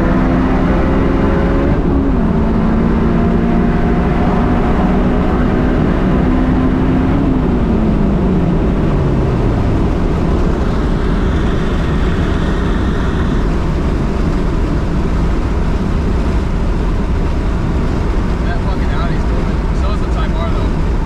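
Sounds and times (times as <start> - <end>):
car engine: 0.0 - 21.0
road noise in car cabin: 0.0 - 21.0
wind noise: 0.0 - 21.0.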